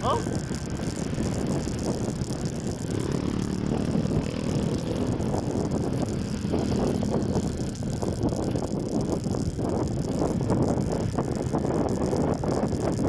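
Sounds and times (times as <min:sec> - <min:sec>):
motorbike engine running: 0:00.0 - 0:13.0
road noise: 0:00.0 - 0:13.0
wind: 0:00.0 - 0:13.0.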